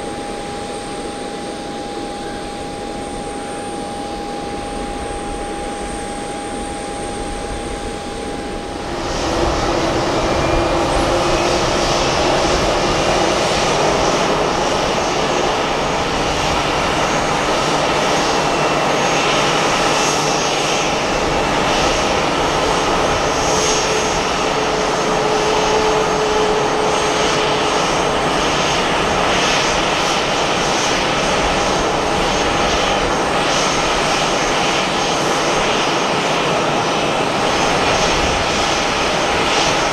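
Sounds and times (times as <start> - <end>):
jet engines running: 0.0 - 39.9.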